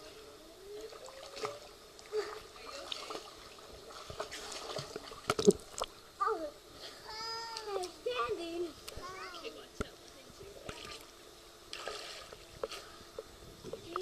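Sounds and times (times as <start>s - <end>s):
pool water lapping and sloshing: 0.0s - 6.1s, 10.0s - 13.2s
water splashes and slaps: 0.9s - 5.9s, 11.7s - 12.9s.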